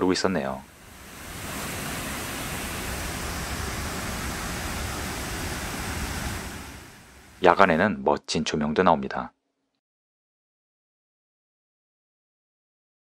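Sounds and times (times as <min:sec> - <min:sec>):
waterfalls roaring into basins: 0:00.0 - 0:07.7.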